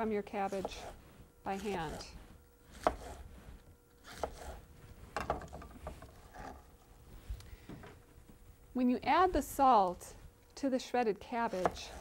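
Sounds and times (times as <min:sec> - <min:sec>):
knife slicing cabbage on board: 0:00.4 - 0:03.3, 0:04.0 - 0:04.6, 0:11.5 - 0:12.0.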